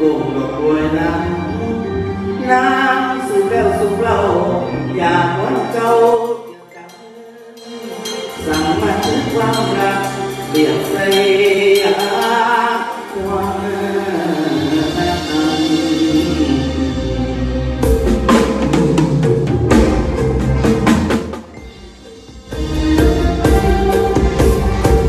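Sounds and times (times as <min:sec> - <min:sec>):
man singing into microphone: 0:00.0 - 0:17.1
live band playing: 0:00.0 - 0:25.0.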